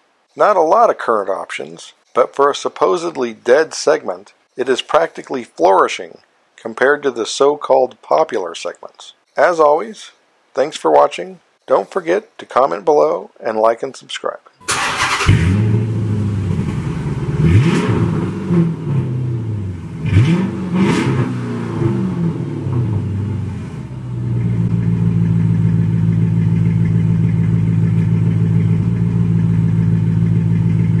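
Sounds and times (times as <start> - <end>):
car engine idling: 14.6 - 31.0
car engine starting and revving: 14.6 - 31.0.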